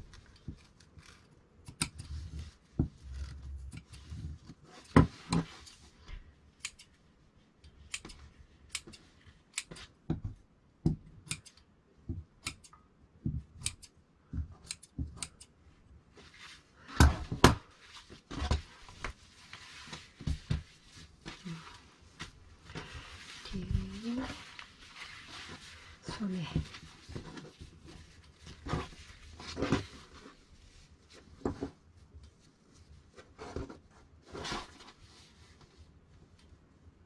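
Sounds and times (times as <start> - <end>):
scissors snipping fabric: 0.6 - 2.2, 7.9 - 9.0, 9.6 - 10.0, 11.2 - 11.6, 12.4 - 12.8, 13.4 - 15.5.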